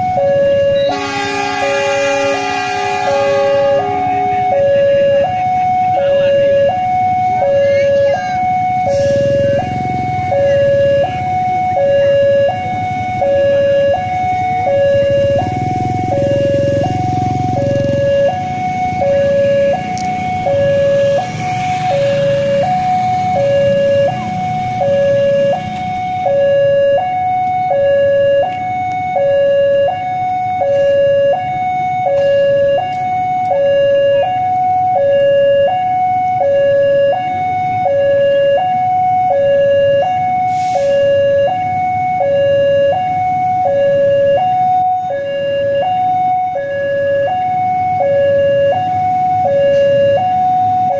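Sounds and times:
level crossing two-tone siren: 0.0s - 50.9s
low rumble: 0.9s - 6.0s.

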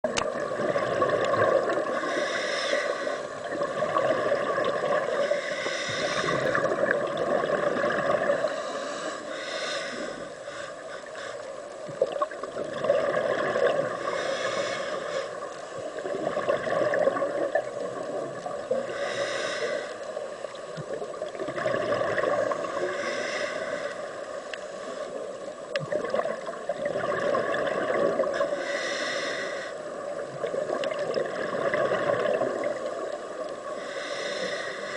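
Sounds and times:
steady underwater hum: 0.0s - 34.9s
diver exhaling bubbles: 0.3s - 2.1s, 3.4s - 5.2s, 6.1s - 8.5s, 12.0s - 14.7s, 16.0s - 17.7s, 21.3s - 23.0s, 25.9s - 28.4s.

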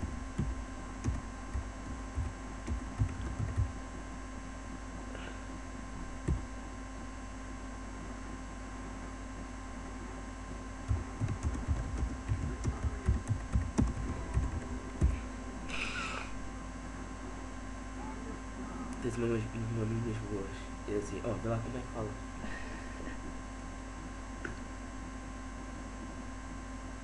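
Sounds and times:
steady electrical hum: 0.0s - 27.0s
typing on a keyboard: 10.9s - 15.1s.

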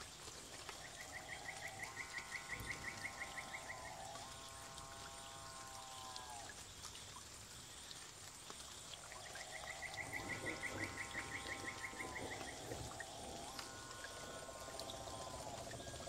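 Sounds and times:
high insect hiss: 0.0s - 16.0s
long whistled bird calls: 0.6s - 4.6s, 9.0s - 16.0s.

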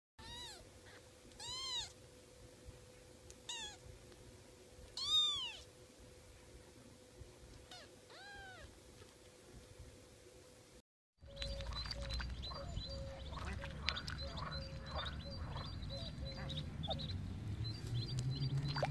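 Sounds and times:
kitten mewing: 0.2s - 2.0s, 3.5s - 3.9s, 5.0s - 5.7s, 7.6s - 8.8s.

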